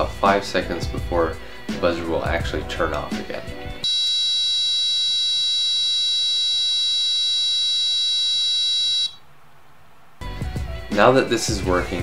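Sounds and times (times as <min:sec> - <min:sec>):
high-pitched buzzer tone: 0:03.8 - 0:09.2.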